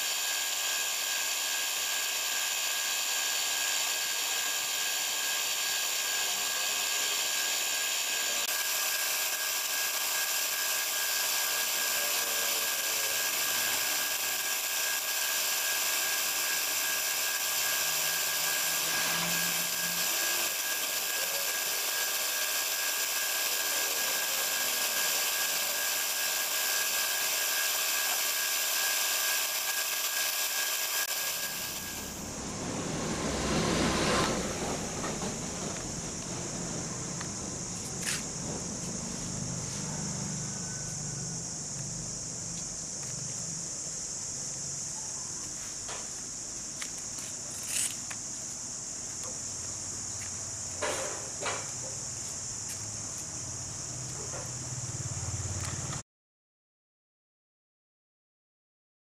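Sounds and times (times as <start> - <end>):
motor humming: 0.0 - 44.0.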